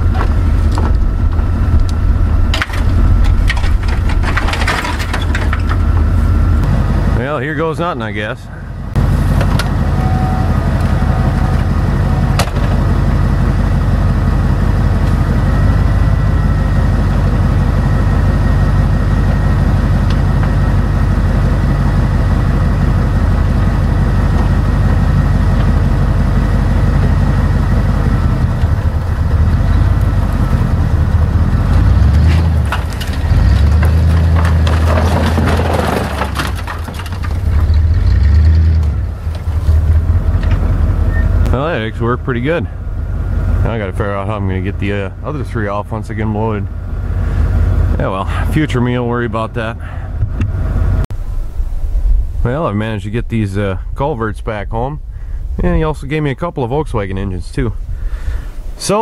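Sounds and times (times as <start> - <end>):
culverts scraping and crashing: 0.0 - 6.7, 31.6 - 40.6
pickup truck engine revving: 0.0 - 51.1.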